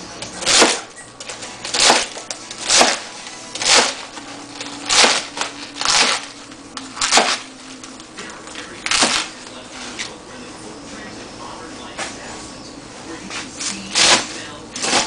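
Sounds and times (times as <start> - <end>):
knife chopping greens on board: 0.4 - 0.9, 1.7 - 4.0, 4.8 - 6.2, 7.0 - 7.5.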